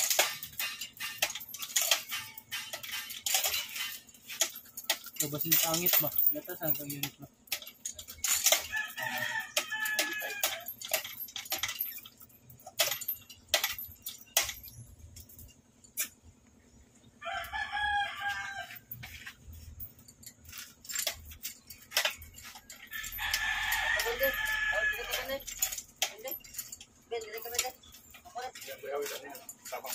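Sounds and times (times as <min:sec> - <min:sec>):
sharp clicks and knocks: 0:00.0 - 0:17.0
rooster crowing: 0:08.6 - 0:10.8, 0:17.2 - 0:19.0, 0:23.0 - 0:25.4.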